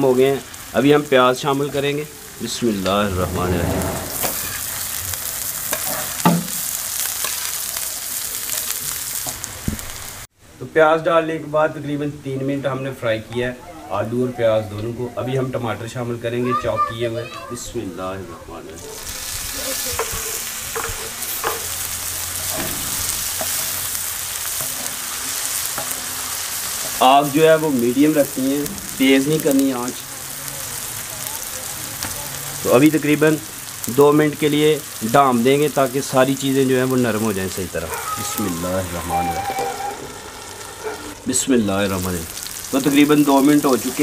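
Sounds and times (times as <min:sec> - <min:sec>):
potatoes sizzling on a griddle: 0:00.0 - 0:02.9, 0:04.3 - 0:12.9, 0:18.8 - 0:44.0
wooden spatula scraping pan: 0:02.7 - 0:06.4
utensil knocking on griddle: 0:06.3 - 0:06.6, 0:20.0 - 0:21.7.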